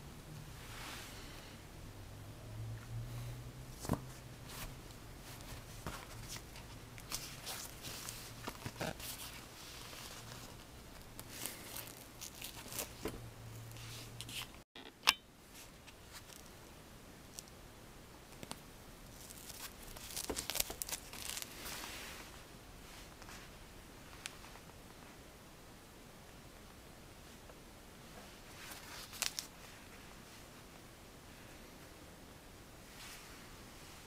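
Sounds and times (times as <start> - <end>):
fabric rustling and scraping: 3.7 - 14.6, 19.1 - 25.2, 28.0 - 30.6, 32.8 - 34.0.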